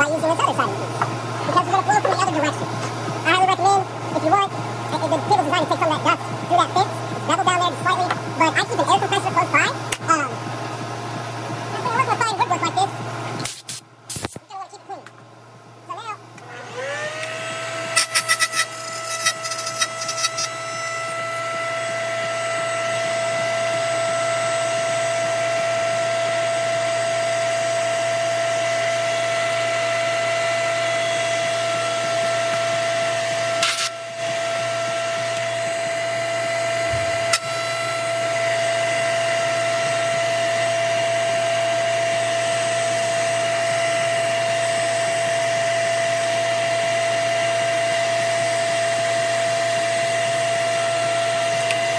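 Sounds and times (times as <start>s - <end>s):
router whining at full speed: 16.0s - 51.9s.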